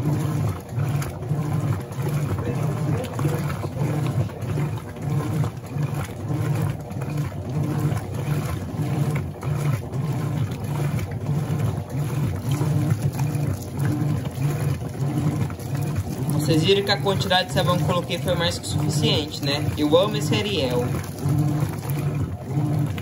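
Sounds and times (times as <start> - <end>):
washing machine churning: 0.0 - 23.0
water sloshing: 0.0 - 23.0.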